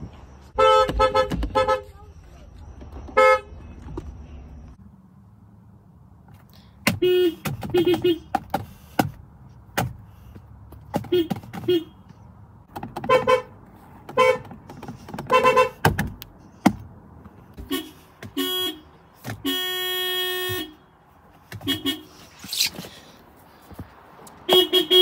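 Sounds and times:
car horns tooting: 0.5 - 2.1, 2.9 - 4.7, 6.8 - 9.0, 10.8 - 12.2, 12.8 - 16.2, 17.5 - 22.7, 24.4 - 25.0.

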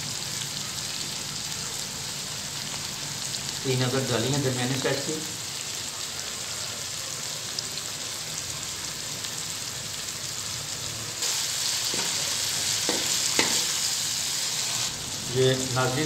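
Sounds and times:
vegetables sizzling in hot oil: 0.0 - 16.0
wooden spoon knocking against pan: 12.8 - 13.7.

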